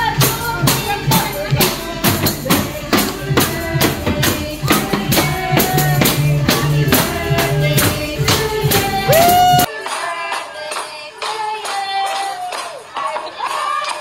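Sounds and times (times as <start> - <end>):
hand drums and tambourines: 0.0 - 9.7.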